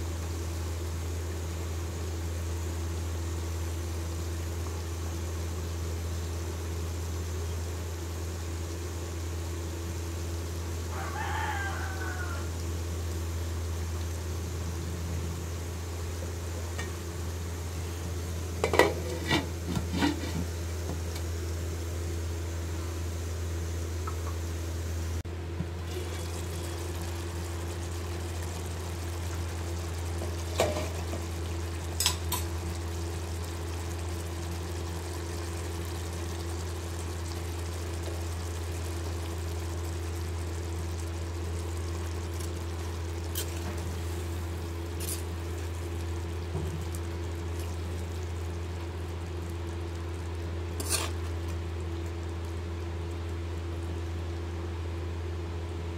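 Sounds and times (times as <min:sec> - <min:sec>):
steady low hum: 0:12.3 - 0:55.9
spoon knocking and scraping pan: 0:18.6 - 0:20.5.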